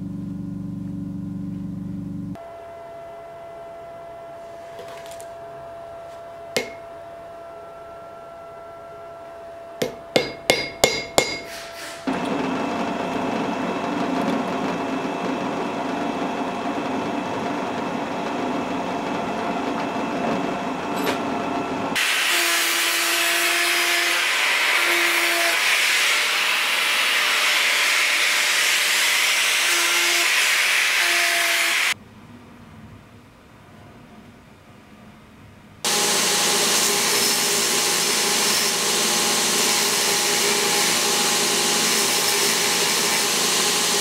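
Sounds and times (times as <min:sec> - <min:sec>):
abrasive grinder cutting steel: 0:06.6 - 0:06.8, 0:09.8 - 0:32.0, 0:35.9 - 0:44.0
hammer tapping on metal: 0:06.6 - 0:06.8, 0:09.8 - 0:11.5
power tool running: 0:09.8 - 0:32.0, 0:35.9 - 0:44.0.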